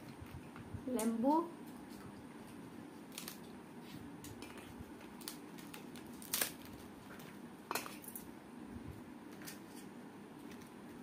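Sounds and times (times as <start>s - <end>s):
papad cracking and crackling: 1.8s - 3.6s, 4.2s - 8.3s.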